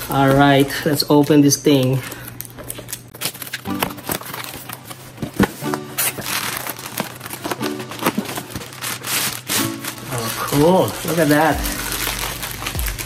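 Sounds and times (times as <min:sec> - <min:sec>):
packaging crinkling and rustling: 0:00.0 - 0:13.0
background music: 0:03.6 - 0:04.3, 0:05.4 - 0:13.0.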